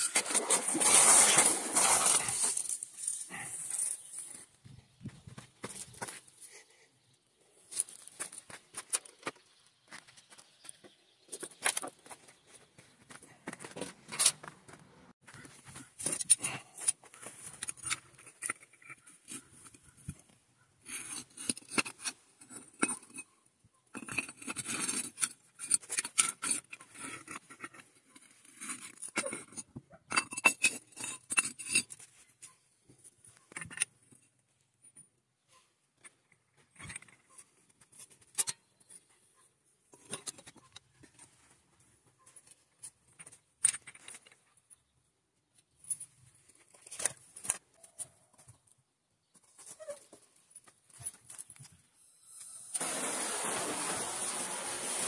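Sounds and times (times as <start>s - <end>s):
metal parts clinking and scraping: 0.0s - 4.3s, 16.0s - 20.2s, 23.9s - 32.1s, 42.3s - 44.5s.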